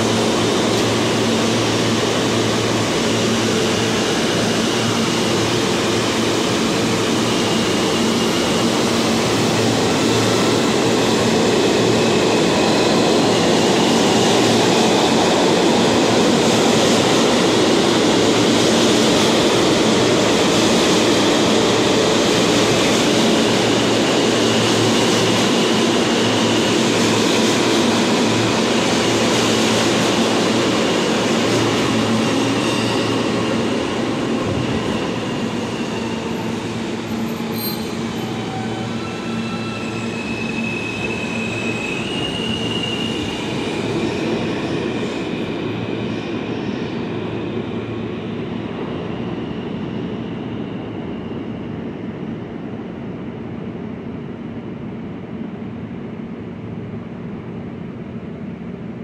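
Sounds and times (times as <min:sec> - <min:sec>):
train wheels rumbling on rails: 0:00.0 - 0:54.2
high wheel squeals: 0:37.1 - 0:44.0.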